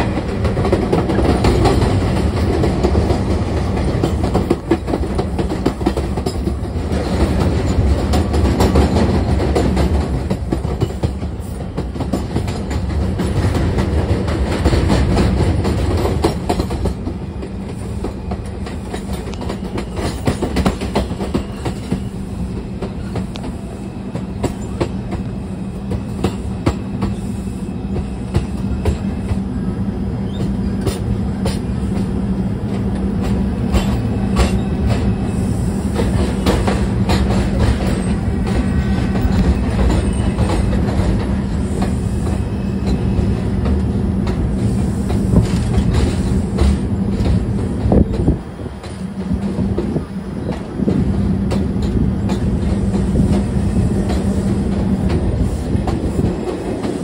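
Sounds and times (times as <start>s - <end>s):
wheels clacking over rail joints: 0.0s - 27.2s, 35.9s - 57.0s
train propulsion noise: 0.0s - 57.0s
train wheels rumbling on rails: 0.0s - 57.0s.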